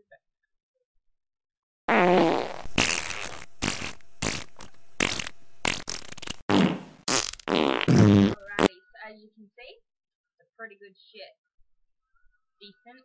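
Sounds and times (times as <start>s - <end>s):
fart sounds: 1.9s - 8.7s.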